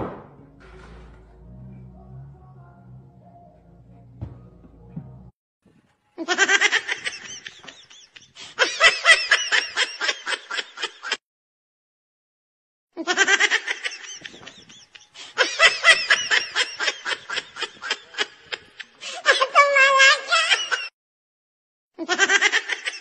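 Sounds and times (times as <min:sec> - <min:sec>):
person laughing high-pitched: 0:13.0 - 0:20.9.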